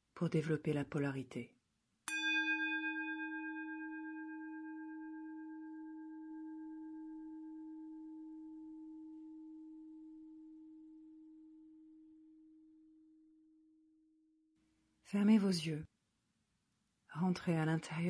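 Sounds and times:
singing bowl ringing: 2.1s - 13.9s.

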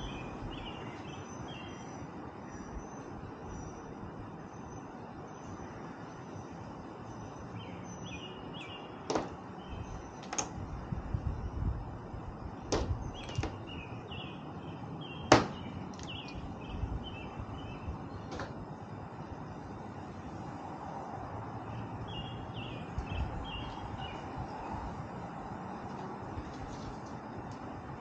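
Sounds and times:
birds chirping: 0.0s - 11.4s, 12.2s - 20.4s, 21.6s - 27.8s
outdoor hiss: 8.9s - 16.7s.

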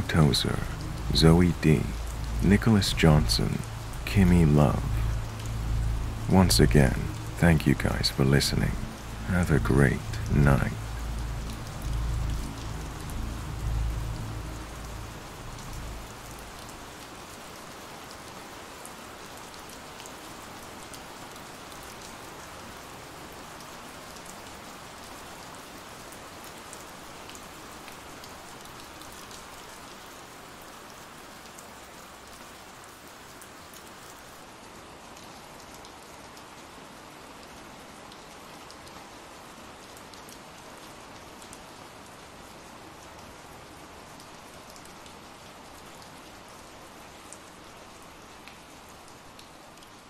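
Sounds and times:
low rumble: 0.0s - 16.6s
raindrop ticks: 0.0s - 18.3s, 48.2s - 50.0s
rain hissing: 0.0s - 34.4s.

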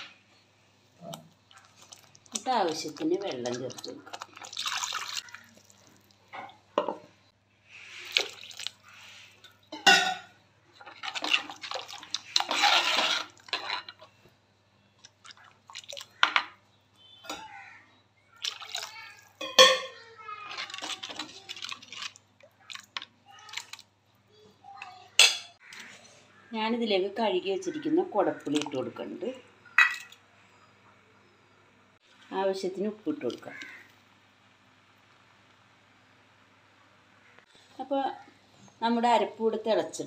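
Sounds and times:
wet stirring: 1.0s - 6.8s, 7.7s - 9.8s, 10.6s - 17.7s, 18.4s - 24.0s, 28.3s - 29.1s
water pouring and splashing: 1.2s - 6.6s, 7.9s - 9.6s, 10.8s - 14.0s, 15.0s - 16.6s, 18.4s - 19.7s, 20.5s - 23.9s.

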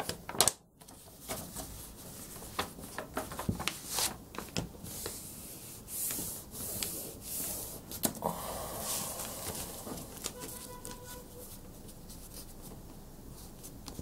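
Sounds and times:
light taps and paper crinkles: 0.0s - 5.2s, 10.1s - 14.0s
paper rustling as folded: 0.0s - 14.0s.

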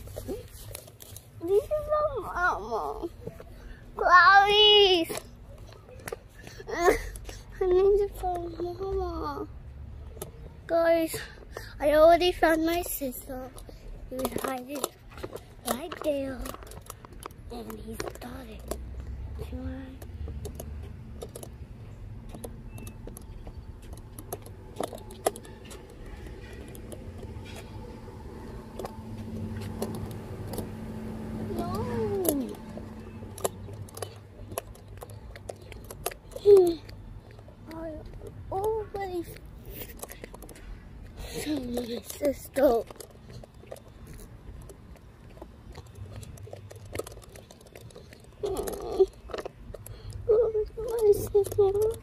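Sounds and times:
faint footsteps and rustling: 0.0s - 52.0s
light clicks and crackles: 12.4s - 52.0s
low motor hum: 18.8s - 39.1s.

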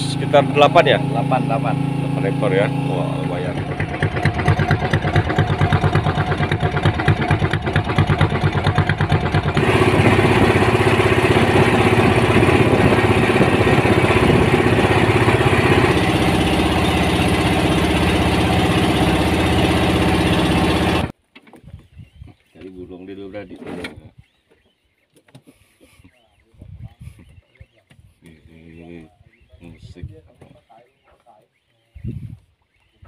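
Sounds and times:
boat engine pulsing: 0.0s - 21.1s.

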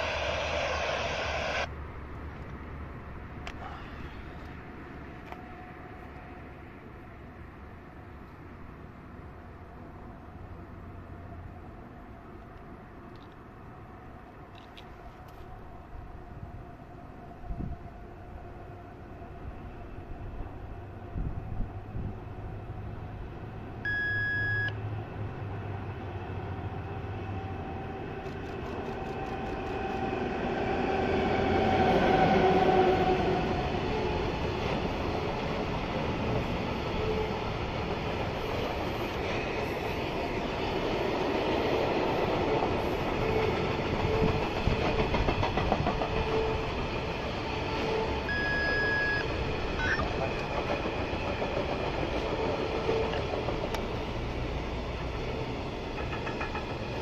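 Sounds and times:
electric locomotive passing: 0.0s - 57.0s
steady high tone: 48.3s - 50.2s
freight wagons rolling on rails: 49.3s - 57.0s.

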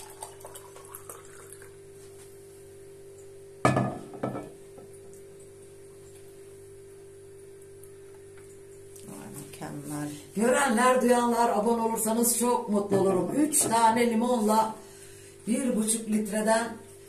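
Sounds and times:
glass jug knocking on counter: 3.6s - 4.6s.

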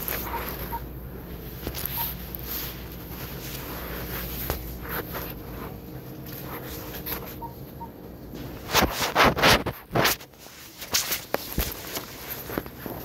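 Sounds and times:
low background hum: 0.0s - 13.0s
phone rustling in hand: 0.0s - 13.0s
short electronic beep: 7.3s - 8.0s.

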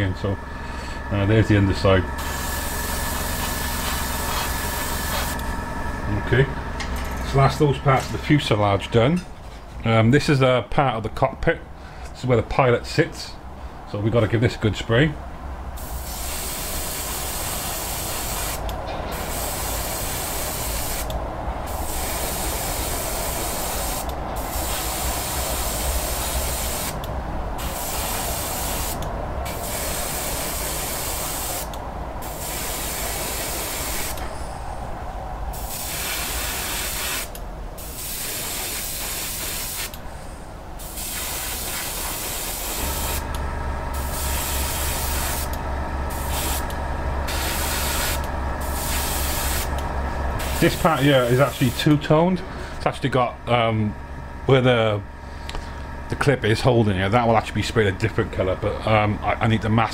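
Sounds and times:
low steady hum: 0.0s - 39.1s, 39.9s - 59.9s
airbrush spraying hiss: 2.2s - 5.4s, 15.8s - 27.0s, 27.6s - 34.2s, 35.5s - 40.0s, 40.8s - 43.2s, 44.0s - 46.7s, 47.3s - 49.8s, 50.4s - 51.9s.

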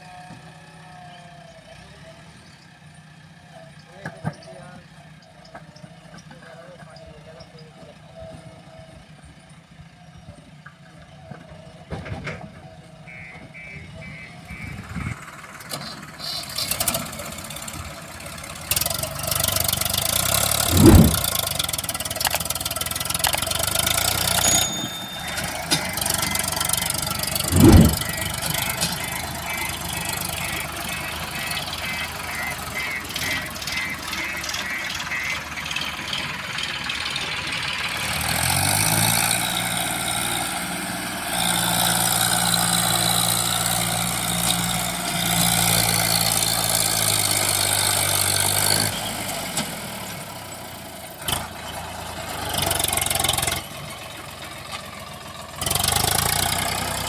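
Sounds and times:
tractor diesel engine under load: 0.0s - 57.0s
heavy thumps: 20.6s - 21.4s, 27.4s - 28.2s.

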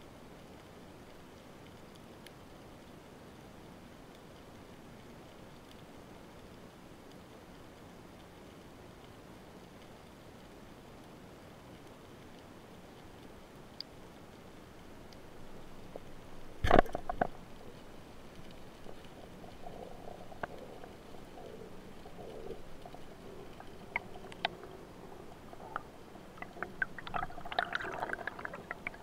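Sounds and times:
underwater clicks and crackles: 0.3s - 29.0s.

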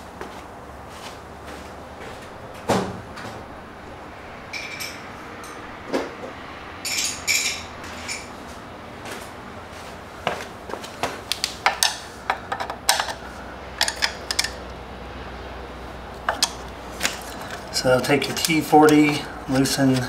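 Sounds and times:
hand tools clinking against metal: 6.8s - 8.3s.

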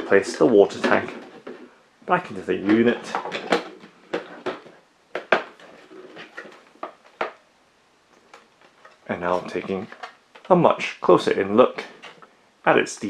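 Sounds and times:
plastic knocks and clicks: 2.7s - 7.4s.

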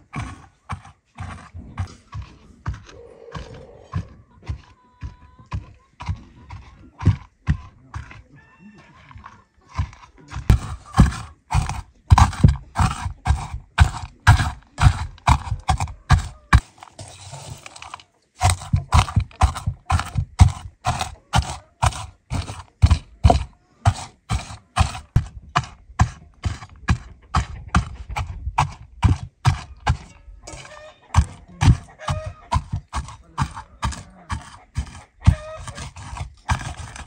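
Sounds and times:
stone pounding nuts on metal pan: 0.0s - 8.2s, 9.7s - 16.7s, 18.4s - 37.0s
shuffling of crushed nuts: 9.8s - 37.0s.

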